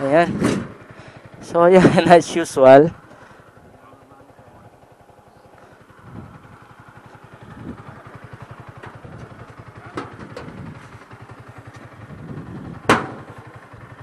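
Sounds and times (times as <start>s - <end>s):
engine idling: 0.0s - 14.0s
sharp knocks: 12.9s - 13.3s.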